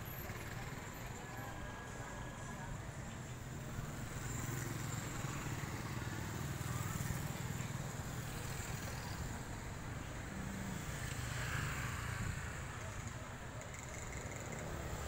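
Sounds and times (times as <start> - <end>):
street traffic: 0.0 - 15.0
motorcycle passing: 3.5 - 15.0.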